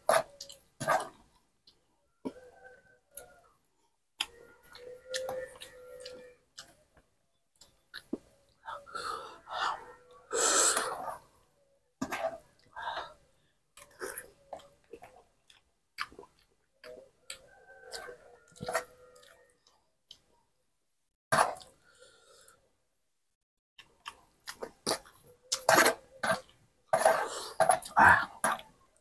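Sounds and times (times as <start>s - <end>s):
chewing: 0.0s - 8.7s, 13.8s - 20.4s, 23.8s - 29.0s
breathing: 8.7s - 11.0s, 12.7s - 13.7s, 21.8s - 22.7s.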